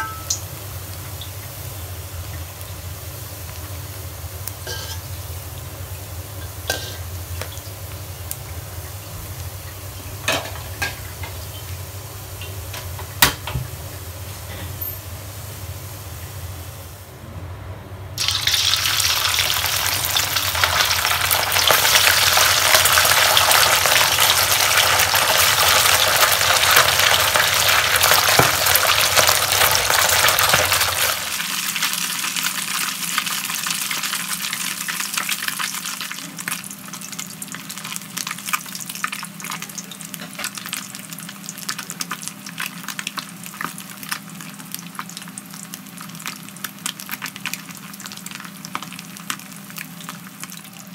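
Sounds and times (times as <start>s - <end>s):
fish deep-frying in hot oil: 0.0s - 16.3s, 18.2s - 50.9s.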